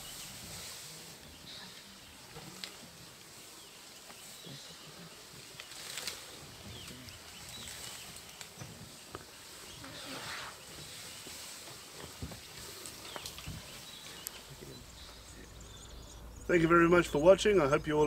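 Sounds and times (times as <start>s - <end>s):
bird calls: 0.0s - 18.0s
insect hum: 0.0s - 18.0s
plants snapping and rustling: 5.2s - 15.2s.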